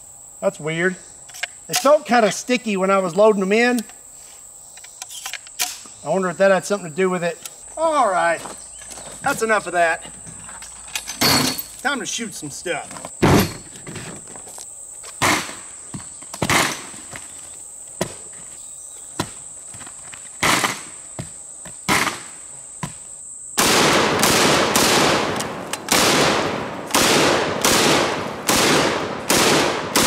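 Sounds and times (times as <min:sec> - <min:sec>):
high insect drone: 0:00.0 - 0:30.0
shotgun shots: 0:21.9 - 0:22.3, 0:23.6 - 0:30.0.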